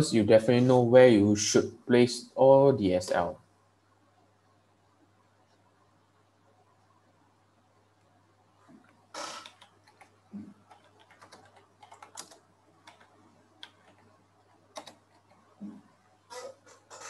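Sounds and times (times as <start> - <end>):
keyboard typing: 9.2 - 15.5.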